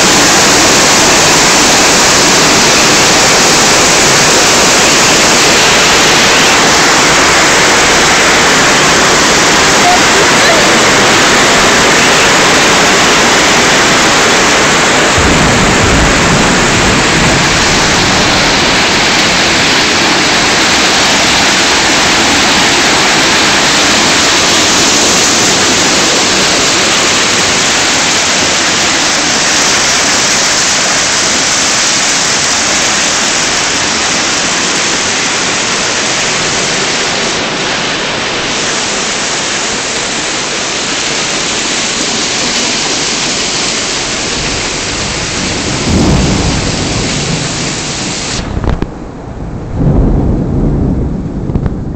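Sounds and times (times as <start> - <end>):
hail and rain pelting down: 0.0 - 51.9
low rumble: 10.8 - 24.0, 43.9 - 51.9.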